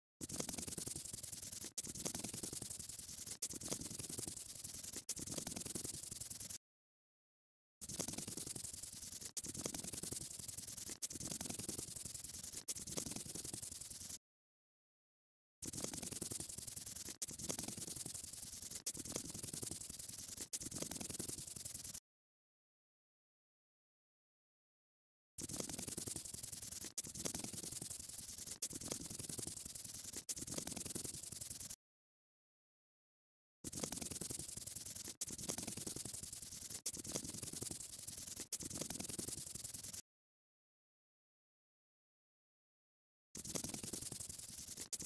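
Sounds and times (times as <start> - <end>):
pen scratching on paper: 0.2 - 6.6, 7.8 - 14.2, 15.6 - 22.0, 25.4 - 31.8, 33.7 - 40.0, 43.4 - 45.0.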